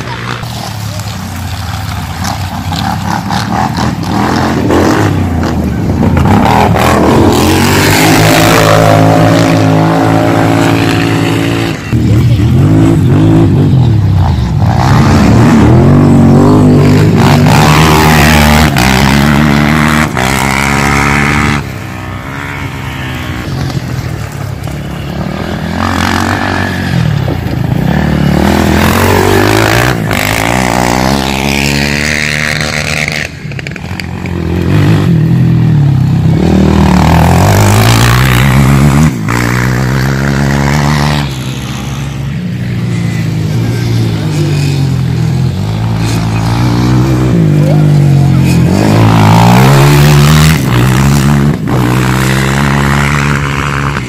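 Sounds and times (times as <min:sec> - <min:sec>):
quad bike engines revving: 0:00.0 - 0:54.0.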